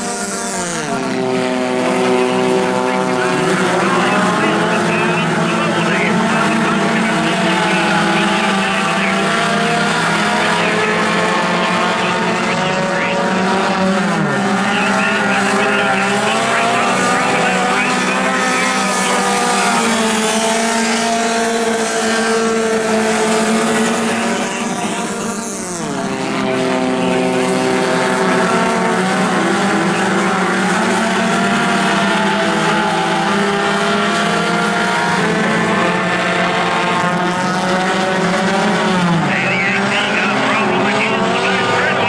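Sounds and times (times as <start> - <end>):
race car engines overlapping: 0.0 - 42.0.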